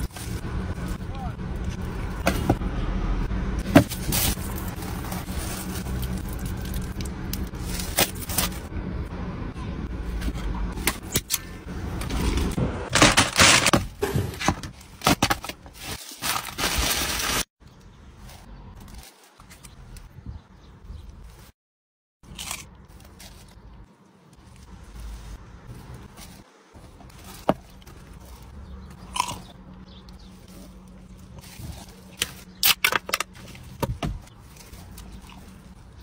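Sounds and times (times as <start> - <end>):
low steady rumble: 0.0 - 14.4, 22.3 - 36.0
takeaway boxes and foil crinkling: 3.6 - 8.7, 12.9 - 17.5, 30.2 - 36.0
food wrapper tearing and rustling: 4.1 - 8.6, 15.8 - 17.5.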